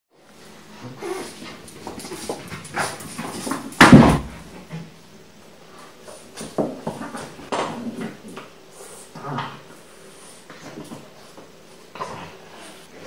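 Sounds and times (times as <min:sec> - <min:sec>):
heavy thud: 0:03.8 - 0:04.5.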